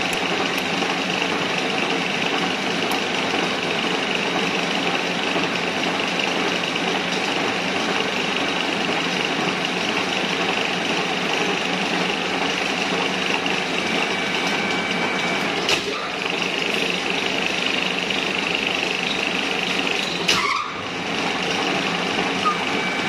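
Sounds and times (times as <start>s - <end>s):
metal lathe cutting thread: 0.0s - 23.0s.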